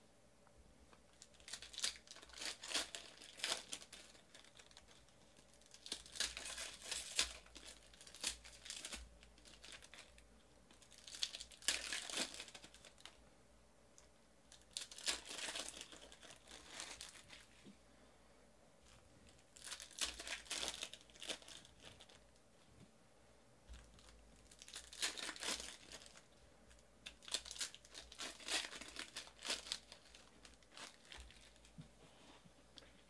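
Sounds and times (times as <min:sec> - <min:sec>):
foil wrappers tearing and crinkling: 0:01.1 - 0:13.2, 0:14.5 - 0:17.5, 0:18.9 - 0:22.2, 0:23.7 - 0:26.3, 0:27.0 - 0:31.8.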